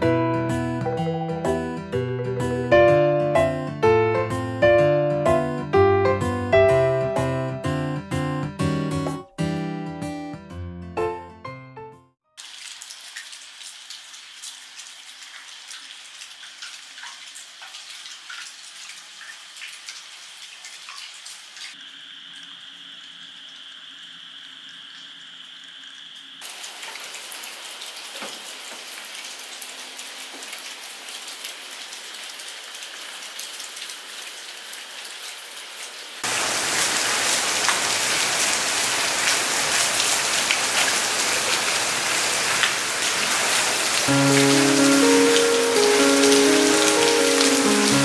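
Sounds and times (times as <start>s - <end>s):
rush of water: 12.4s - 48.0s
water splashing and dripping: 12.4s - 48.0s.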